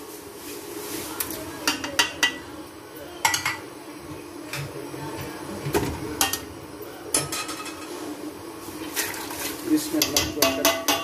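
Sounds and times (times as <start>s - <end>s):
kitchenware clinking against metal pot: 7.1s - 7.9s, 10.0s - 11.0s.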